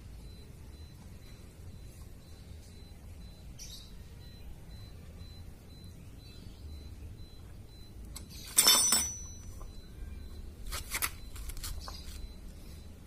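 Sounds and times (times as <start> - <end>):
metallic chain clinks: 8.4 - 9.5
loud metal clank ringing: 8.6 - 9.4.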